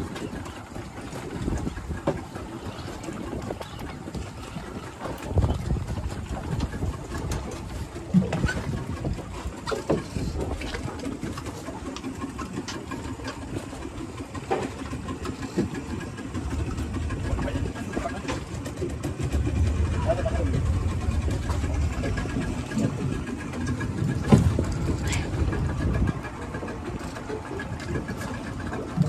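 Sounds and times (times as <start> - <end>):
outboard motor rumble: 0.0 - 29.0
water and wind noise: 0.0 - 29.0
knocks on boat: 23.8 - 26.0.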